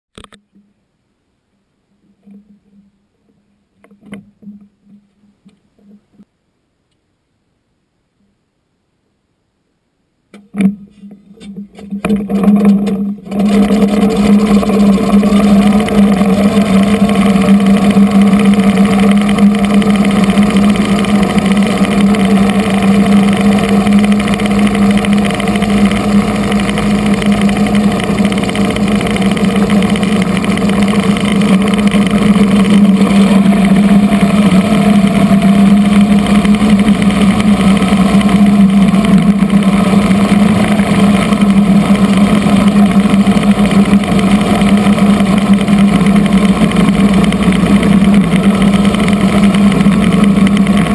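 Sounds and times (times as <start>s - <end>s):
helicopter engines and rotor running: 11.8s - 50.9s.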